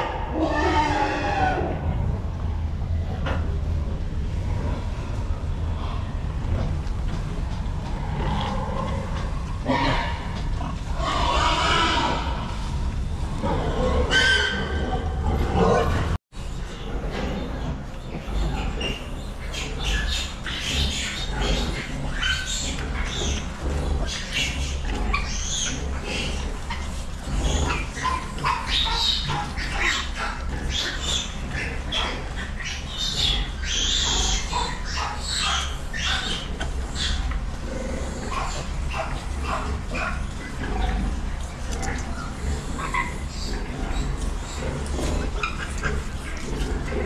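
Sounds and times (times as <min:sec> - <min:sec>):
piglets squealing: 0:00.0 - 0:01.8, 0:09.6 - 0:10.3, 0:10.9 - 0:12.6, 0:13.5 - 0:16.0, 0:17.6 - 0:37.4, 0:38.2 - 0:41.0, 0:41.8 - 0:46.9
steady low hum: 0:00.0 - 0:47.0.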